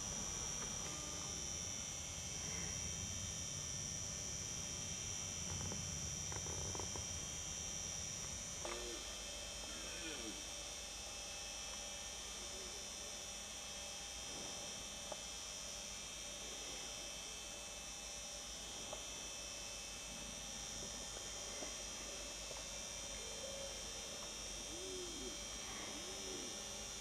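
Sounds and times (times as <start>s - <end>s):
low electrical hum: 0.0s - 27.0s
night insects chirring: 21.5s - 27.0s.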